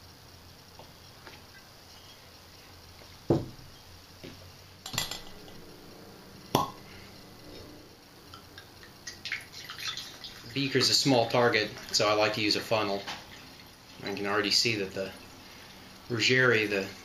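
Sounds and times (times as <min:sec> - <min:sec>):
glass and metal clinking: 0:04.8 - 0:05.7
wine pouring through funnel: 0:04.9 - 0:16.8.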